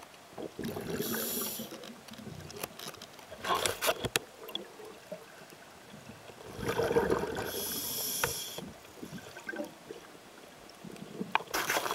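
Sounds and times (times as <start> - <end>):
breath bubbling underwater: 0.4 - 1.7, 6.4 - 7.8
regulator air hiss: 1.0 - 1.8, 7.5 - 8.7.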